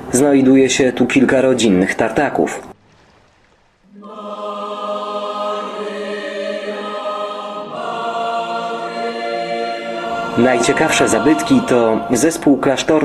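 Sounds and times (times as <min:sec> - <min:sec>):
choir singing held chords: 0:03.9 - 0:13.0.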